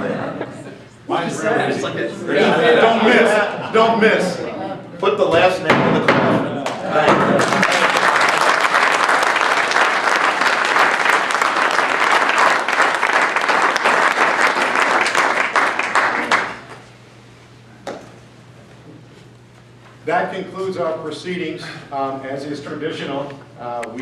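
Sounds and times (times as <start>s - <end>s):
audience applauding: 6.6s - 16.8s.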